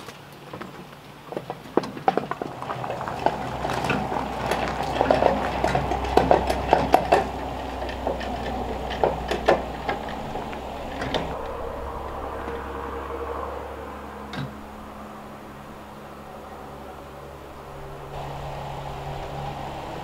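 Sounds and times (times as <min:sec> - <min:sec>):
wood chipper rattling over gravel: 0:00.0 - 0:12.7
low rumble: 0:02.5 - 0:20.0.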